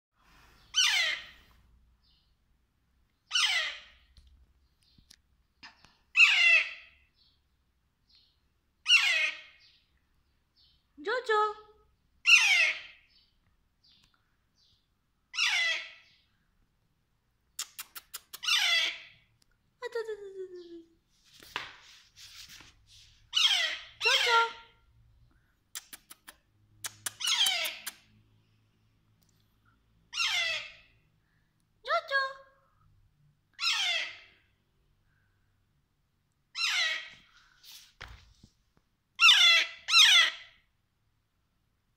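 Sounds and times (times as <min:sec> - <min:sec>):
parakeet squawking: 0:00.7 - 0:01.4, 0:03.3 - 0:04.0, 0:06.1 - 0:06.9, 0:08.8 - 0:09.7, 0:12.2 - 0:13.1, 0:15.3 - 0:16.2, 0:18.4 - 0:19.2, 0:23.3 - 0:24.7, 0:27.2 - 0:27.9, 0:30.1 - 0:30.9, 0:33.6 - 0:34.3, 0:36.5 - 0:37.2, 0:39.2 - 0:40.5
sharp clicks: 0:25.8 - 0:28.0.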